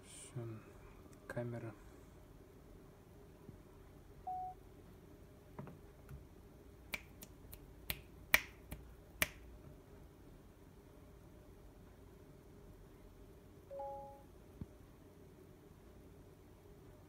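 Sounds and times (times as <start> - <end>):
phone camera beep: 4.3 - 4.6, 13.7 - 14.2
finger snaps: 6.9 - 9.5.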